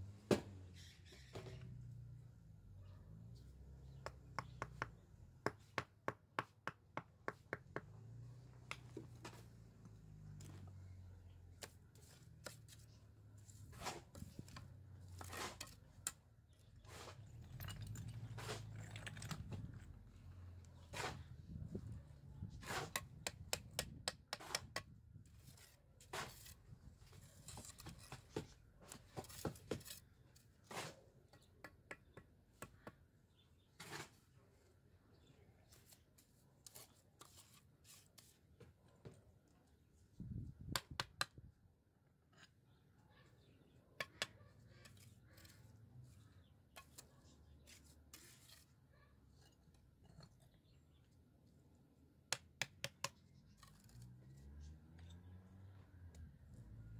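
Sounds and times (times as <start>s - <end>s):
trowel scraping and tapping mortar: 3.8s - 9.5s, 20.8s - 34.2s, 44.0s - 50.8s, 52.3s - 55.2s.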